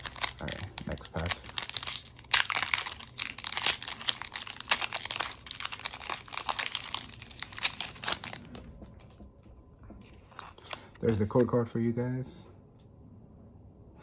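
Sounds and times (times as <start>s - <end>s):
foil wrapper crinkling and tearing: 0.0s - 8.7s, 10.1s - 11.1s.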